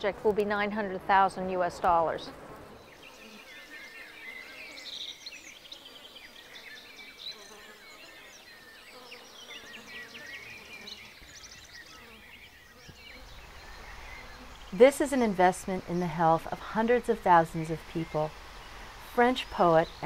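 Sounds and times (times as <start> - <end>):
soft background hiss: 10.8 - 20.0.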